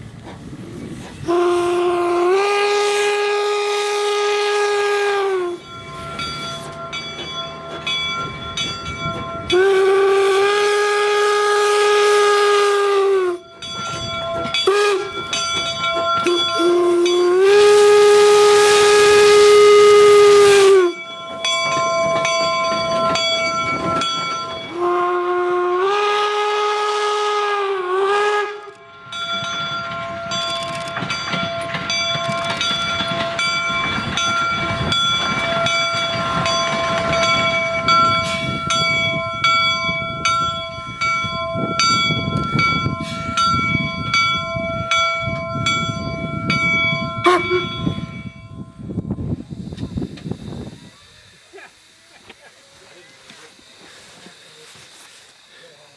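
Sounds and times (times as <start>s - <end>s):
locomotive hiss and clatter: 0.0s - 41.0s, 41.6s - 44.4s, 48.8s - 55.9s
steam whistle blasts: 1.2s - 6.7s, 9.5s - 13.5s, 14.3s - 15.4s, 16.2s - 21.0s, 22.1s - 28.9s, 41.6s - 43.7s, 46.5s - 52.1s.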